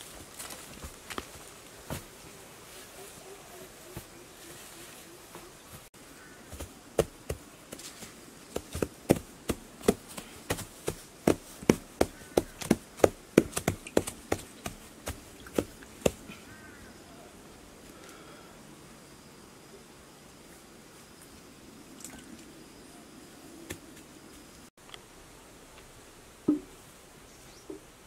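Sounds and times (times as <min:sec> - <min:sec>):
hands patting turf on soil: 0:00.0 - 0:16.4.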